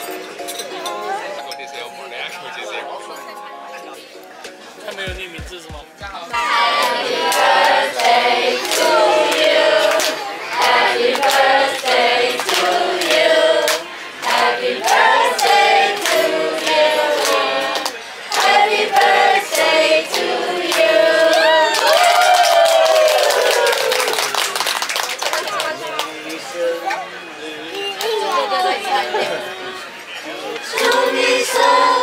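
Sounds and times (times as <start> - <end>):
steady beat: 4.8 - 9.8
group singing in unison: 6.4 - 21.8, 30.5 - 32.0.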